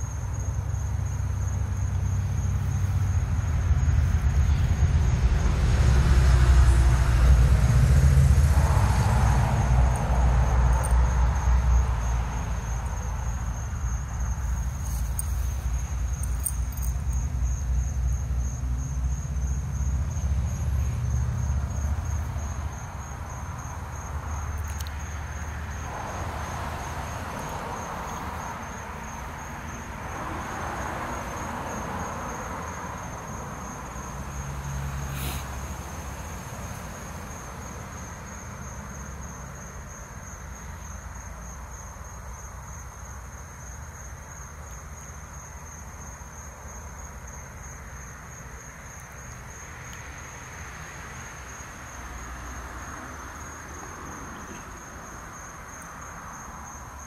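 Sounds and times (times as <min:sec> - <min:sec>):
insects trilling: 0:00.0 - 0:05.2, 0:08.8 - 0:57.0.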